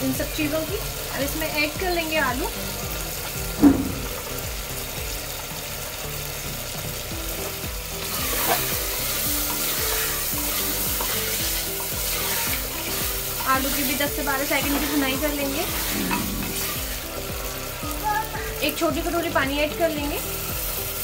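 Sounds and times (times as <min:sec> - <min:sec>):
food sizzling in hot oil: 0:00.0 - 0:21.0
spatula stirring: 0:08.0 - 0:17.2.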